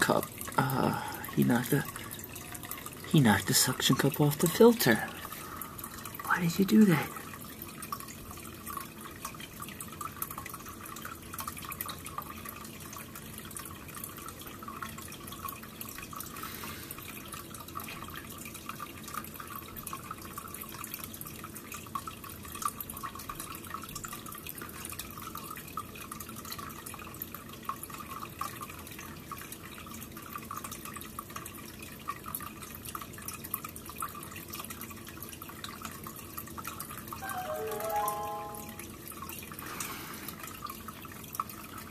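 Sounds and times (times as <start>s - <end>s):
aquarium filter water trickling: 0.0s - 41.9s
drips and bubbles: 0.0s - 41.9s.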